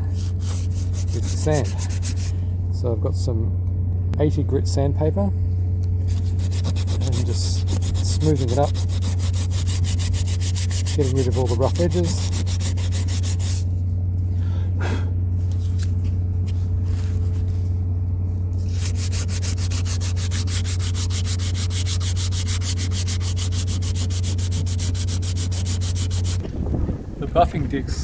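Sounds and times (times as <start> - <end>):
sandpaper rubbing on fibreglass: 0.0 - 2.4, 6.0 - 13.7, 18.6 - 26.4
steady low hum: 0.0 - 28.0.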